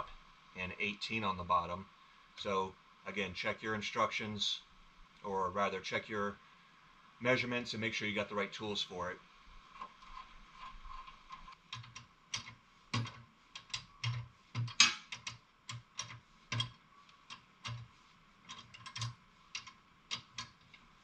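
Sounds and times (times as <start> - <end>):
wrenches clicking on metal: 10.1 - 20.8.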